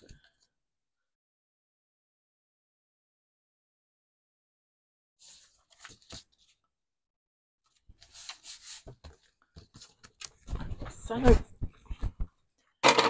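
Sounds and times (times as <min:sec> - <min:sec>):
paper scraping: 0:08.0 - 0:10.0.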